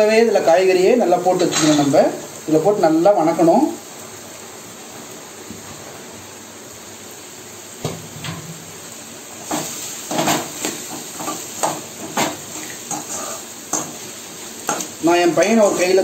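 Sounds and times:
vegetables sizzling in hot oil: 0.0 - 16.0
spoon scraping and knocking pan: 9.4 - 16.0.

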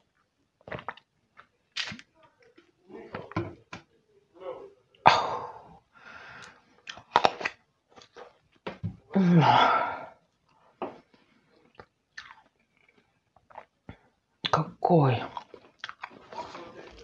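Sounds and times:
breathy groan: 9.1 - 10.2
woman chewing: 11.6 - 13.8, 15.3 - 17.0.

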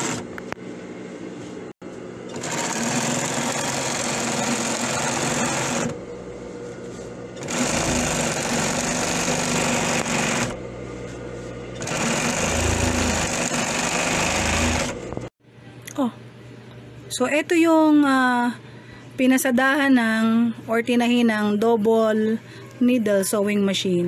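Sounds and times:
sewing machine stitching: 0.0 - 0.2, 2.3 - 6.0, 7.4 - 10.6, 11.8 - 15.1
quiet steady machine hum: 0.0 - 24.0.

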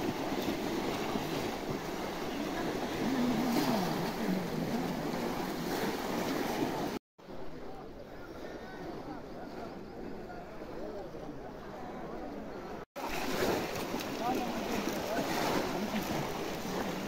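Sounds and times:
crowd splashing through water: 0.0 - 7.0, 12.7 - 17.0.

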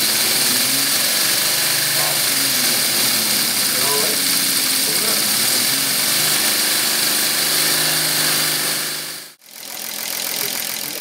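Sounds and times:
air hissing: 0.0 - 9.4
steady hum: 0.0 - 9.4
quieter motor running: 0.0 - 11.0.

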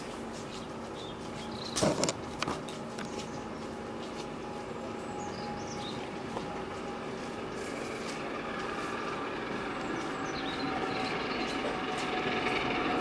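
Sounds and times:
steam locomotive rumbling: 3.7 - 13.0.

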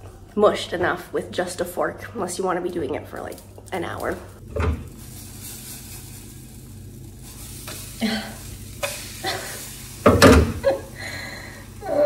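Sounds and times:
batter sizzling in a pan: 4.8 - 12.0.

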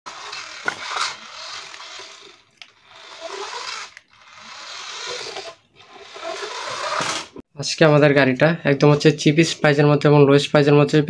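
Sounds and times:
toy car motor whirring: 0.1 - 7.4.

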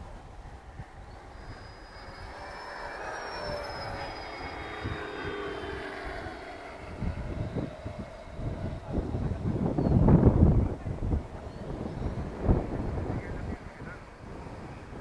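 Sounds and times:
model jet fans whining past: 0.0 - 15.0
wind buffeting microphone: 0.0 - 15.0.

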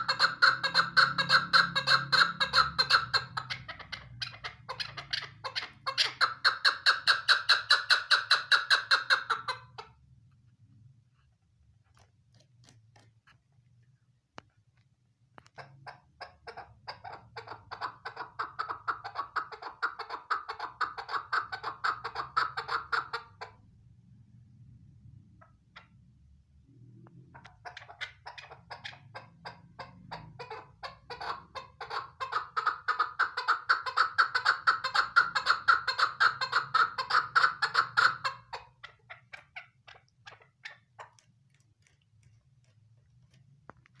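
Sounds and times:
partridge chattering calls: 0.0 - 9.9, 27.4 - 41.2.

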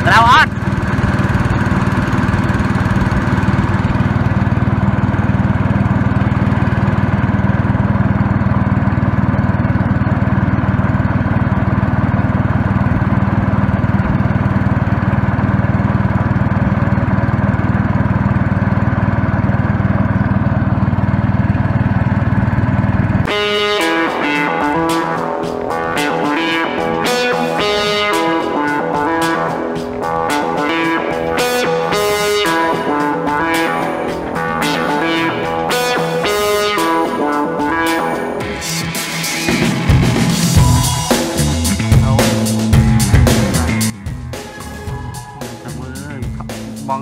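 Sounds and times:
small boat engine running: 0.0 - 47.0.

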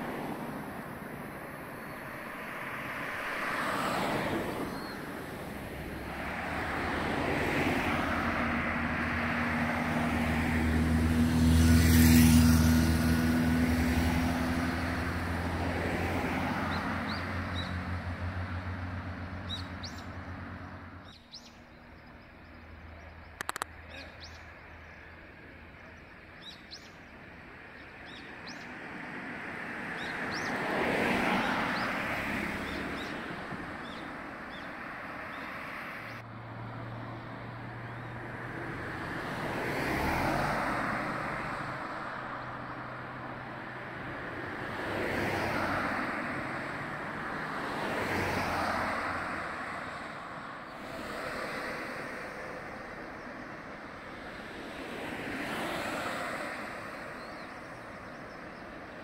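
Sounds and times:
cars driving past: 0.0 - 59.0
small birds chirping: 4.7 - 5.1, 19.2 - 29.2, 29.9 - 30.6, 33.8 - 36.2, 56.9 - 59.0.

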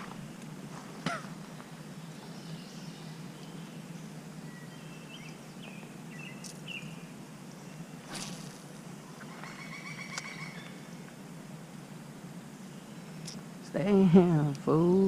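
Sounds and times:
low outdoor rush: 0.0 - 15.0
birds chirping and whistling: 1.5 - 8.1, 9.0 - 11.1.

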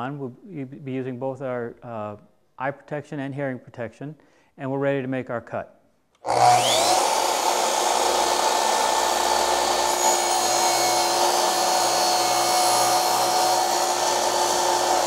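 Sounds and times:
miter saw motor whine: 6.3 - 15.0.

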